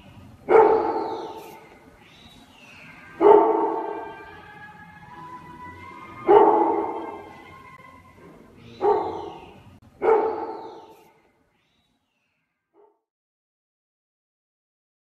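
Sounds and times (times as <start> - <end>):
dog barking: 0.5 - 1.8, 3.2 - 4.3, 6.2 - 7.3, 8.7 - 11.2, 12.8 - 13.0.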